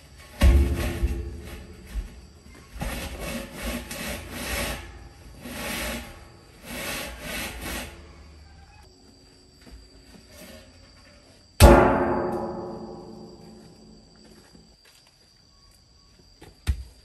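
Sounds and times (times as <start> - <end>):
rough scraping strokes: 0.6 - 8.6.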